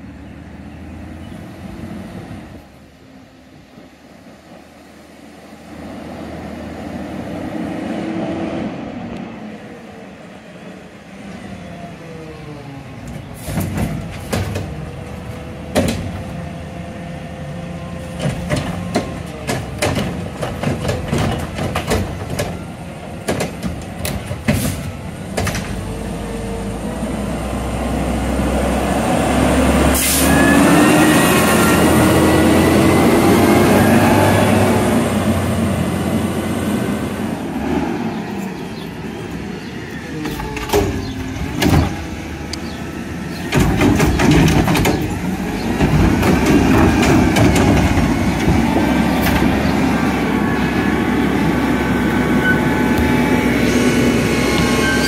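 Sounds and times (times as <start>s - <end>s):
cart tipping bangs and clatter: 13.4s - 14.8s, 18.2s - 25.8s, 40.3s - 42.1s, 43.3s - 49.7s.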